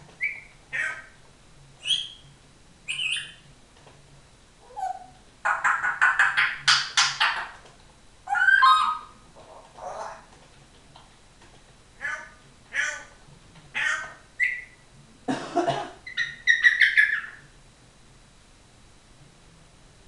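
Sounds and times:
parrot whistling and squawking: 0.2 - 1.2, 1.8 - 2.2, 2.9 - 3.4, 4.6 - 7.6, 8.2 - 9.2, 13.8 - 14.8, 16.0 - 17.5.

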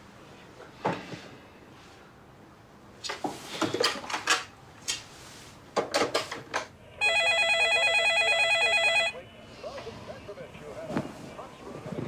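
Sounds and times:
telephone ringing: 7.0 - 9.2.

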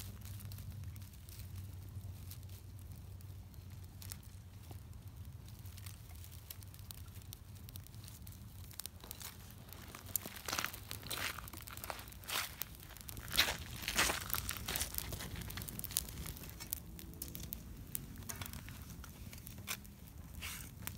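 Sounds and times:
twig fire crackling and snapping: 0.0 - 20.9
thin sticks rustling: 9.0 - 20.9.

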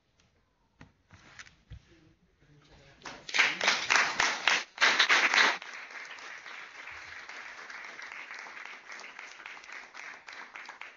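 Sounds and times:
audience applauding: 3.1 - 10.9.

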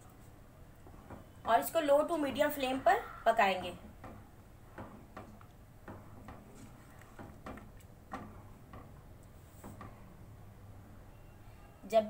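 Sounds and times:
soft irregular ticks and taps: 3.9 - 10.0
pot of milk and rice cooking: 3.9 - 10.3.

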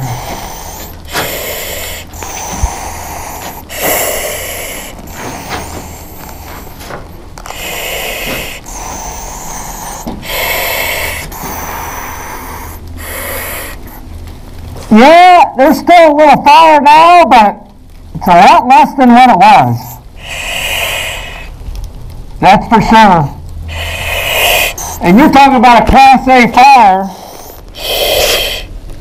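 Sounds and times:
air regulator hiss: 0.0 - 14.0, 20.2 - 21.5, 23.7 - 25.2, 27.0 - 28.7
breathing through a face mask: 0.0 - 14.1, 19.8 - 21.6, 23.7 - 25.2, 27.0 - 28.8
steady low hum: 0.0 - 16.5, 19.0 - 29.0.

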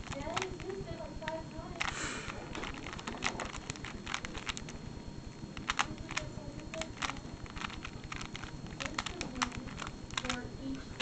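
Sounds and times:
puzzle cube layers clicking: 0.0 - 4.7, 5.6 - 10.4.

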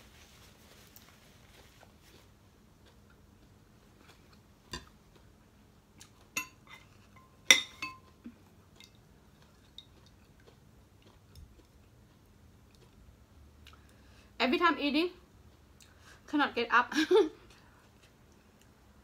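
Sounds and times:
metal spoon clinking on ceramic: 6.4 - 8.1.

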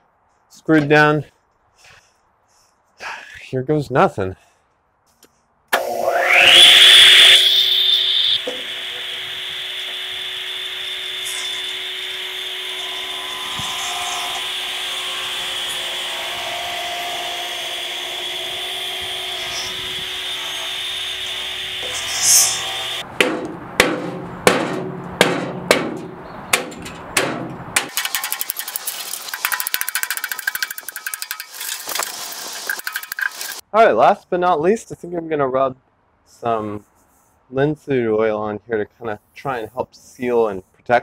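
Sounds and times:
radial arm saw running: 5.8 - 23.0, 27.9 - 33.6
hammer knocking on wood: 23.2 - 27.9.

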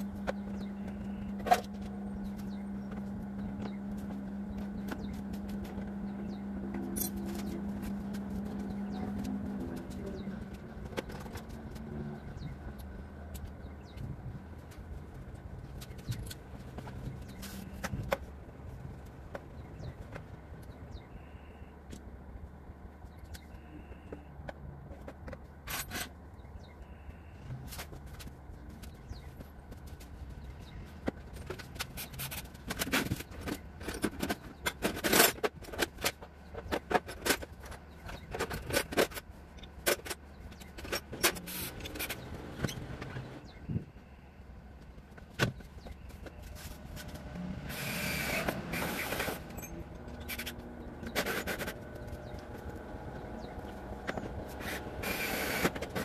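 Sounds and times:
low steady hum: 0.0 - 56.0
hand tools clinking on metal: 6.8 - 7.9
metal tools clinking: 6.8 - 9.0, 48.4 - 52.2.

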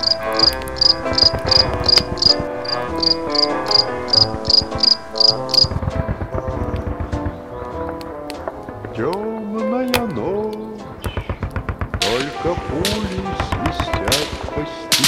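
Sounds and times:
crickets chirping: 0.0 - 5.8
slow instrumental music: 0.0 - 15.0.

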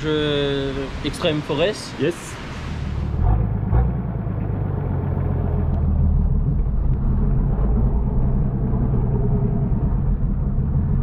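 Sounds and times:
engine running: 3.0 - 11.0.

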